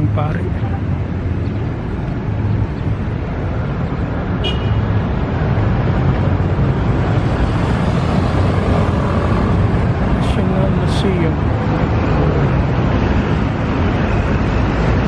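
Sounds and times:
cars passing: 0:00.0 - 0:15.0
motorcycle passing: 0:07.2 - 0:10.0.

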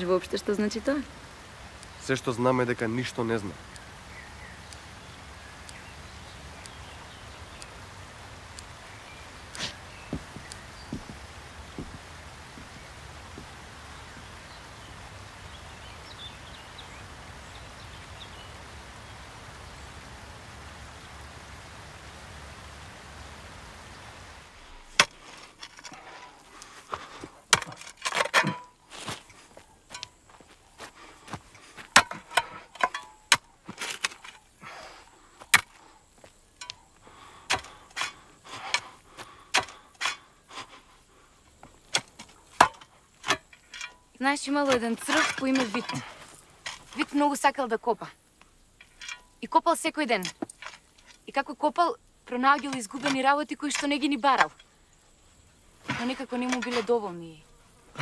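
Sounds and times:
outdoor background hiss: 0:00.0 - 0:58.0
stones clacking together: 0:24.8 - 0:34.5, 0:50.2 - 0:51.3.

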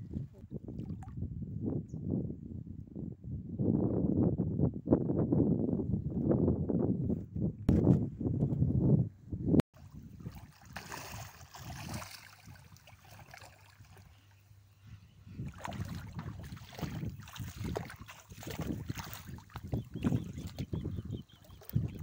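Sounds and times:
water sloshing and splashing: 0:09.8 - 0:14.4, 0:15.4 - 0:22.0.

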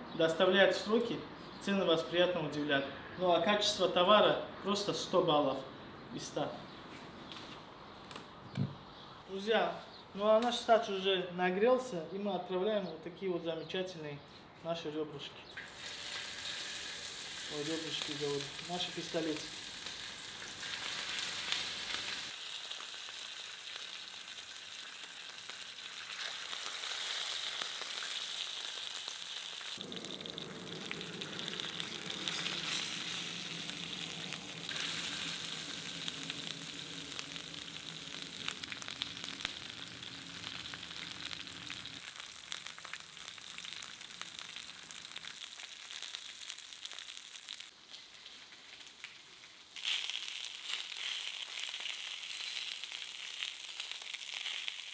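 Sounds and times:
meat sizzling in a pan: 0:15.6 - 0:54.9.

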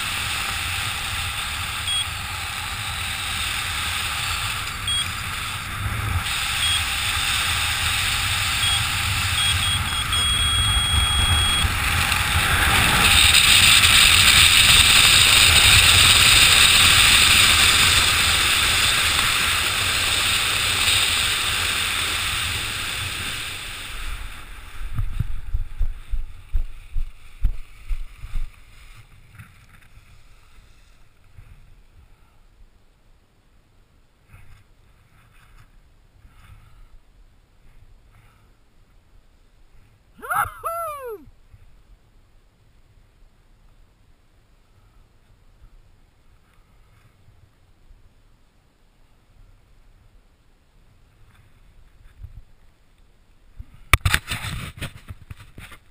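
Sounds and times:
wind rushing over microphone: 0:00.0 - 0:29.5
faint high beeps: 0:01.8 - 0:02.1, 0:04.8 - 0:05.1, 0:06.5 - 0:06.9, 0:08.6 - 0:11.7.

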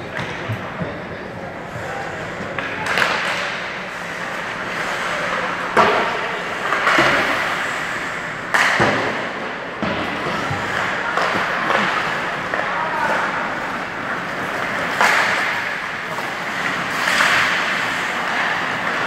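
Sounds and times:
knocks of sticks and puck: 0:00.0 - 0:01.0, 0:01.7 - 0:19.0
skate blades scraping on ice: 0:10.1 - 0:19.0.

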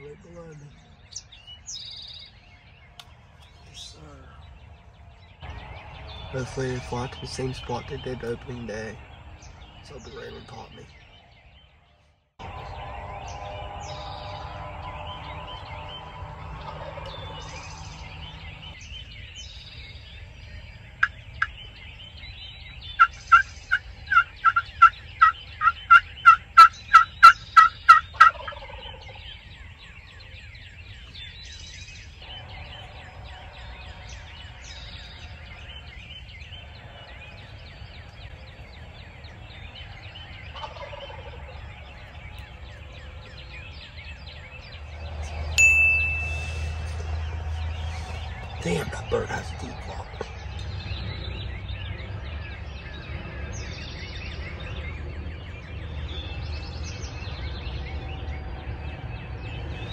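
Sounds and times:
songbirds singing: 0:00.0 - 0:59.9
turkey gobbling: 0:16.5 - 0:18.2, 0:23.0 - 0:29.2, 0:40.5 - 0:41.6
turkey call yelps: 0:23.0 - 0:29.2.

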